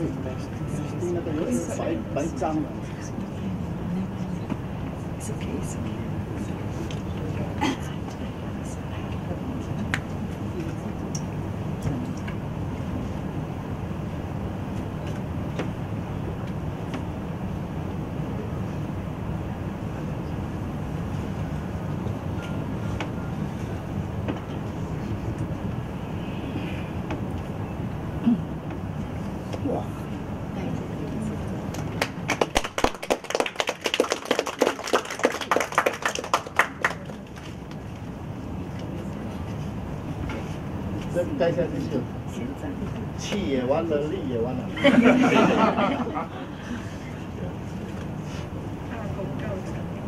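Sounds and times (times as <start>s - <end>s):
low room rumble: 0.0s - 50.0s
audience clapping: 31.7s - 37.8s.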